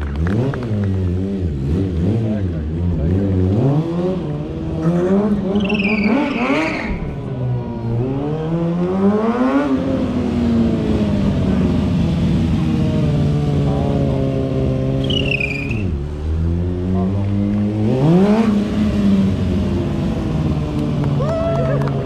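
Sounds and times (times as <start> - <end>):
motorcycle engine revving: 0.0 - 21.2
high squeal: 5.5 - 7.1, 15.0 - 16.0.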